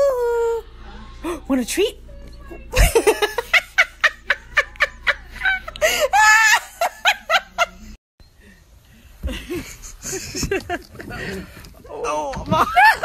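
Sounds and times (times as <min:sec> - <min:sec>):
person laughing hard: 0:12.2 - 0:13.0.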